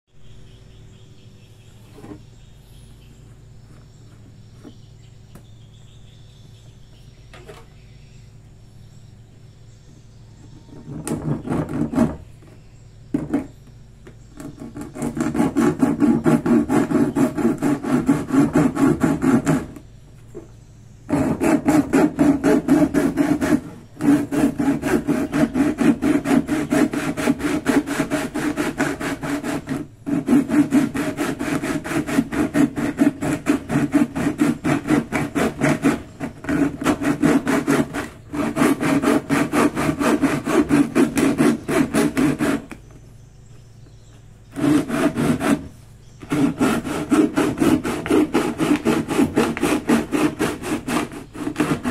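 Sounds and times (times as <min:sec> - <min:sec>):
hand saw cutting plastic: 0:10.7 - 0:12.3, 0:14.3 - 0:20.4, 0:21.1 - 0:42.9, 0:44.5 - 0:51.9.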